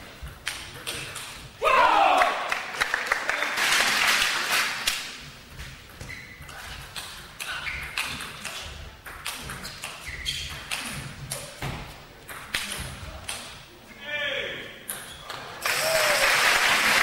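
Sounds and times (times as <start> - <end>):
applause: 2.2 - 4.9, 15.6 - 17.0
shoe squeaks on floor: 5.6 - 8.8, 9.5 - 11.6, 14.9 - 15.6.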